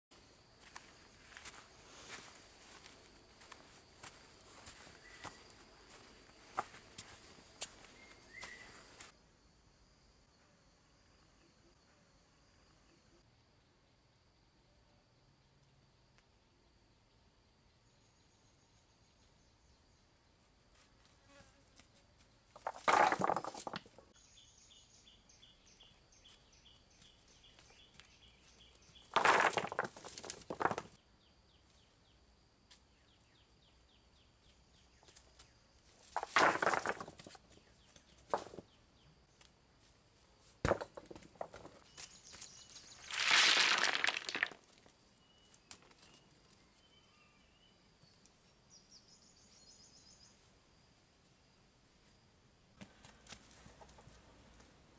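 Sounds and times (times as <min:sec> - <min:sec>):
stones clattering on rock pile: 0:22.6 - 0:24.1, 0:29.0 - 0:31.0, 0:36.0 - 0:37.5, 0:38.3 - 0:38.6, 0:40.6 - 0:44.9
faint rapid chirping trills: 0:41.8 - 0:43.2.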